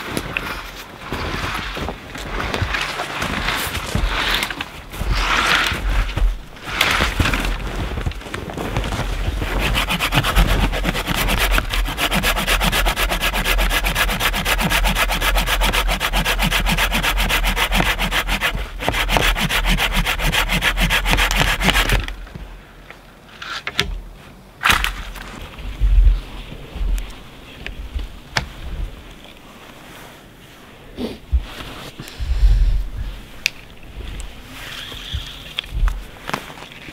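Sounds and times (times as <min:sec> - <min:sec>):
hand saw cutting branch: 0:09.4 - 0:22.1.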